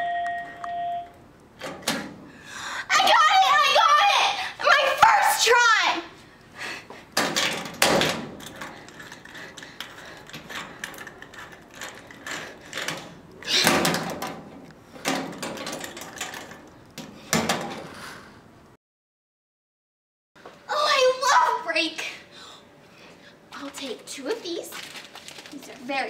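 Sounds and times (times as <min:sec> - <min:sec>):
metallic clatters: 0:07.2 - 0:16.8.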